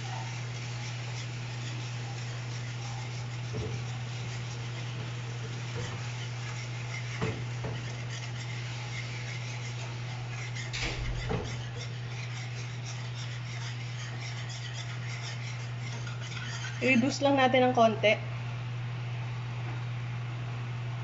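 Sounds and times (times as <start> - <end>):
glaze bubbling in a frying pan: 0.0 - 17.2
whisk clinking against pan: 0.0 - 17.3
whisk stirring and scraping: 0.0 - 17.9
steady low hum: 0.0 - 21.0.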